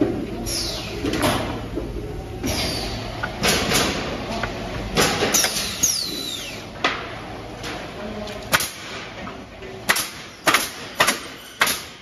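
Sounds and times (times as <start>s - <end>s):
machine low hum: 0.0s - 10.4s.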